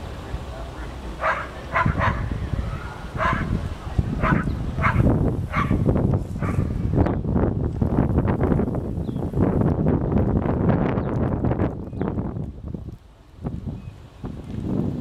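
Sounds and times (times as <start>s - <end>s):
low steady rumble: 0.0s - 15.0s
dog barking: 1.2s - 3.6s, 4.2s - 5.8s, 6.4s - 6.8s.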